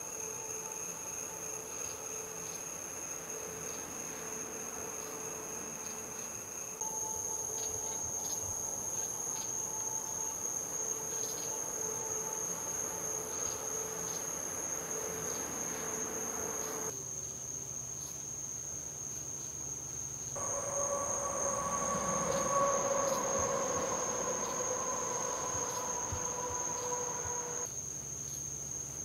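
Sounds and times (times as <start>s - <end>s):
crickets chirping: 0.0s - 29.0s
faint low hum: 20.4s - 27.7s.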